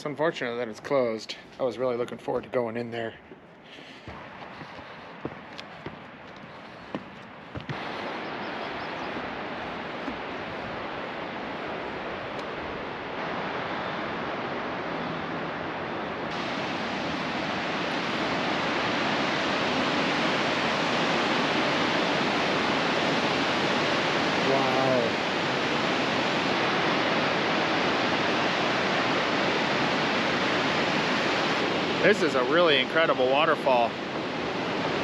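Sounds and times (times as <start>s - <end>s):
waterfall rushing: 7.6s - 35.0s.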